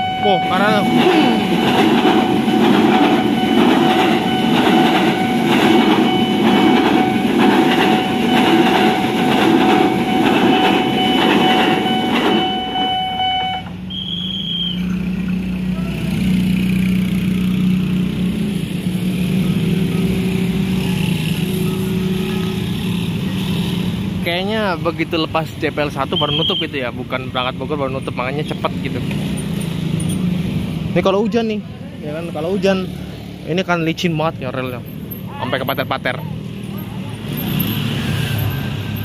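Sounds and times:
level crossing warning alarm: 0:00.0 - 0:14.7
electric train passing: 0:00.0 - 0:25.4
motorcycle engines: 0:00.0 - 0:39.0.

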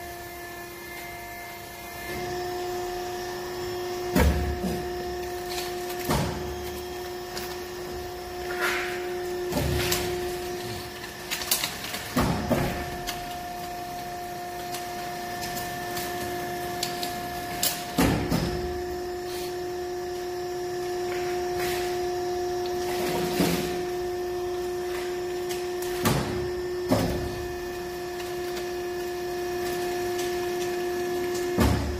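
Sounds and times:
machine running with hum: 0:00.0 - 0:31.9.

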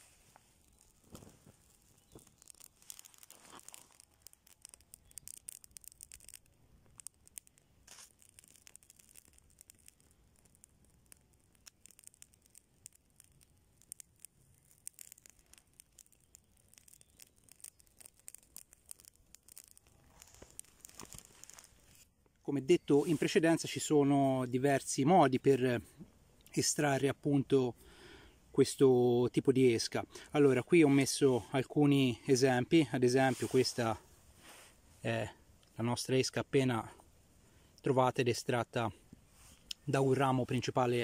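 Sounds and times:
dull rustles: 0:00.0 - 0:06.4, 0:14.1 - 0:22.1, 0:33.1 - 0:35.1
small fire crackling and popping: 0:00.0 - 0:41.0.

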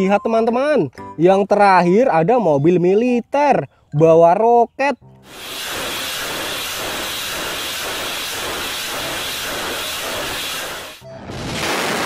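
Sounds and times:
rocket motors hissing: 0:05.2 - 0:11.0.

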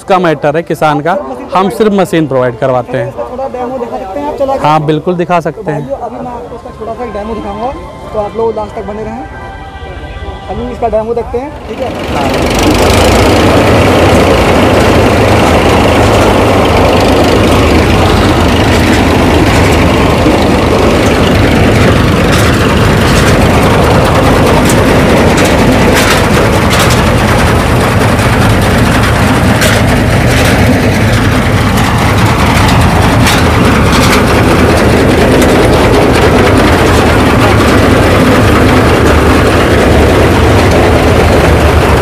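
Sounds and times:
tractor diesel engine drone: 0:00.0 - 0:42.0
sharp clack: 0:17.4 - 0:41.1.

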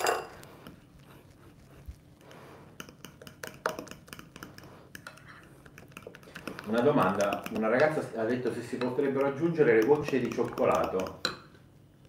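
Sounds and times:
whisk clicking against glass bowl: 0:02.8 - 0:11.4.

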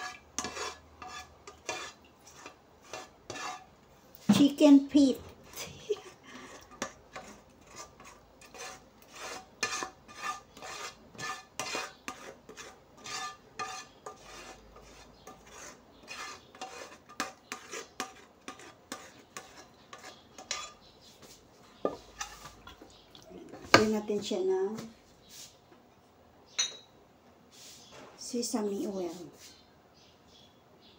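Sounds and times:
spatula scraping a frying pan: 0:00.0 - 0:22.8.

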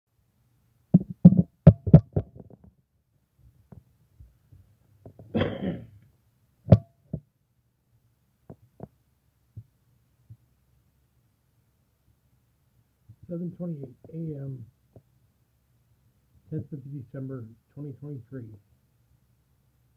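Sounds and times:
camera handling thumps and knocks: 0:01.0 - 0:02.7.

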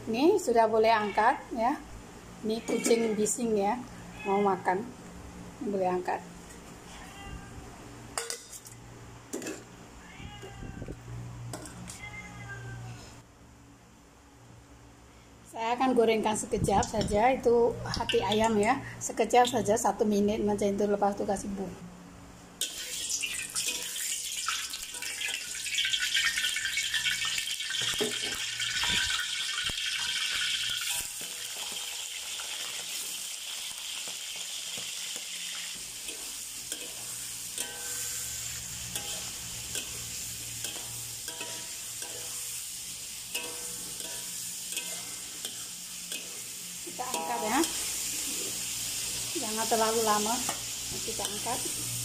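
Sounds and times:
metal spatula scraping wok: 0:22.6 - 0:29.1, 0:30.0 - 0:33.2, 0:34.4 - 0:51.9
food sizzling in hot oil: 0:22.6 - 0:52.0.

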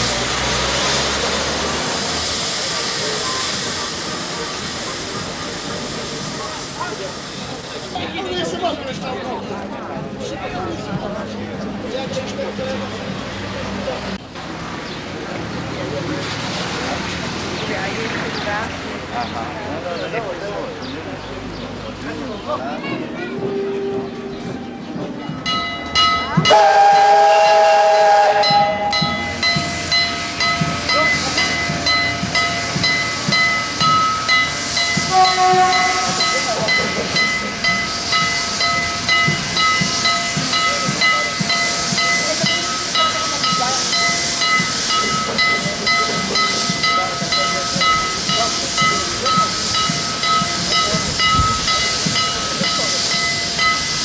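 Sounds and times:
hissing steam: 0:00.0 - 0:54.0
steam locomotive whistle: 0:26.4 - 0:29.5, 0:34.6 - 0:36.6.

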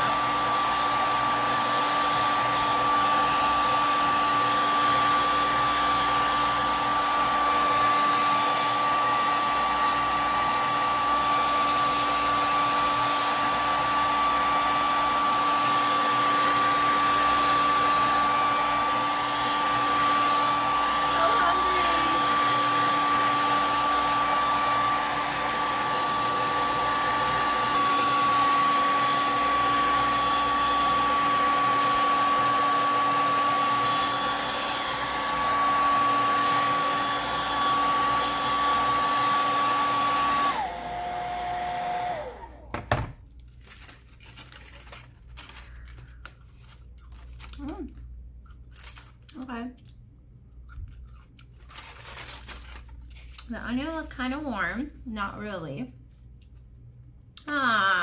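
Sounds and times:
hair dryer running: 0:00.0 - 0:43.2
faint handling sounds: 0:43.3 - 0:49.9.

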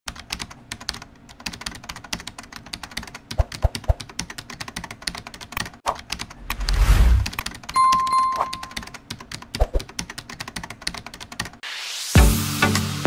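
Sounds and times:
rapid clicking and tapping: 0:00.1 - 0:06.4, 0:08.6 - 0:11.6.

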